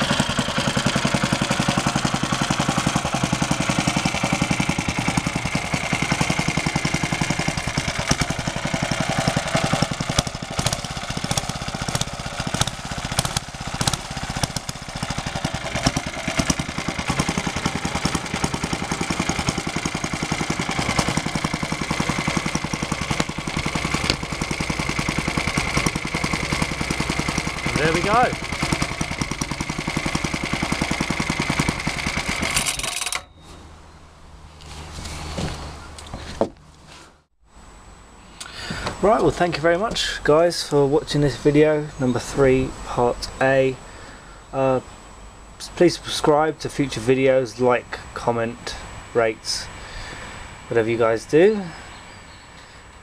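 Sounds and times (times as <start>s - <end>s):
small petrol engine idling: 0.0s - 33.5s, 49.4s - 53.0s.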